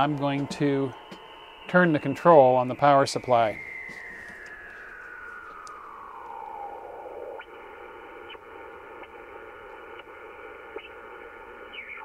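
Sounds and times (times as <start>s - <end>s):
whistling tone sliding down: 0.0s - 8.6s
faint rising chirps: 0.0s - 9.4s
radio static hiss: 0.0s - 12.0s.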